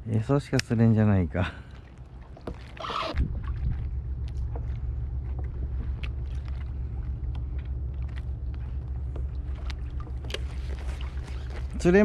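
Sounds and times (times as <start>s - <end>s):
wind rumble on microphone: 3.1s - 12.0s.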